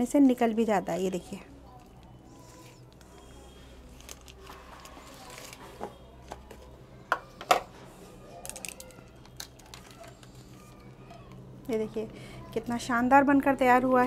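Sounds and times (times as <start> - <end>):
cling film crinkling: 1.7 - 5.9.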